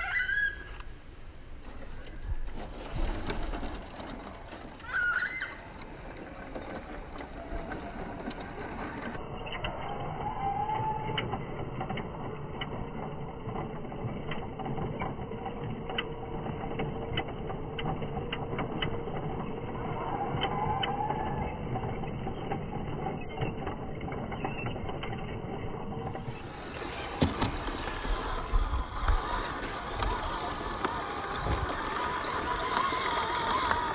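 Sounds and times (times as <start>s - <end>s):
rc truck motor whining: 1.6s - 33.9s
sharp clicks: 26.1s - 33.9s.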